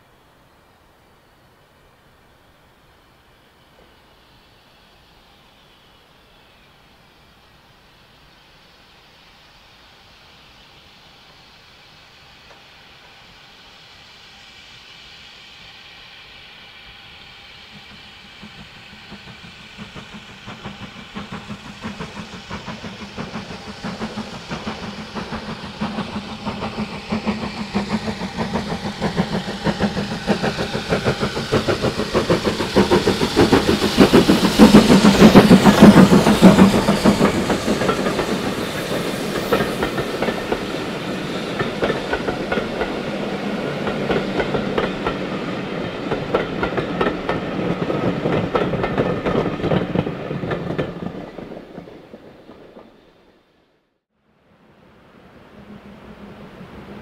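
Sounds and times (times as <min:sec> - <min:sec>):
steam locomotive exhaust beats: 0:02.7 - 0:53.6
train coaches rattling past: 0:15.4 - 0:53.5.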